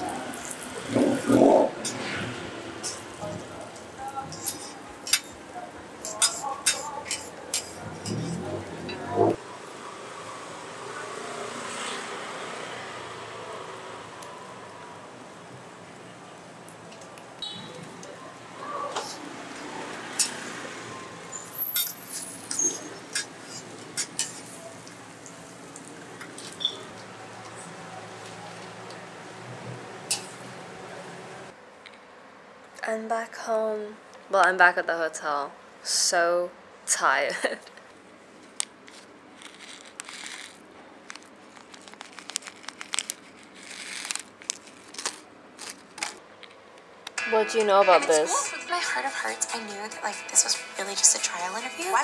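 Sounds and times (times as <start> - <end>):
metal spatula clinking on griddle: 6.0 - 7.8
plastic container crinkling and clicking: 38.6 - 46.6.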